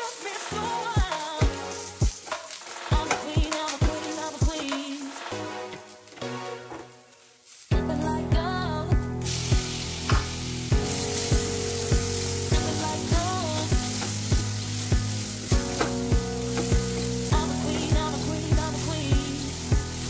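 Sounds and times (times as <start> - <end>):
spatula stirring in pan: 0.0 - 7.7, 9.4 - 20.0
food sizzling in oil: 0.0 - 8.4, 9.2 - 20.0
background music with beat: 0.0 - 20.0.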